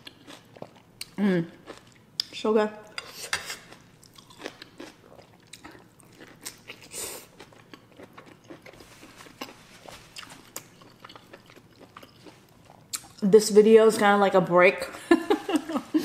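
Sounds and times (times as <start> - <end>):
chewing and wet mouth sounds: 0.0 - 13.3.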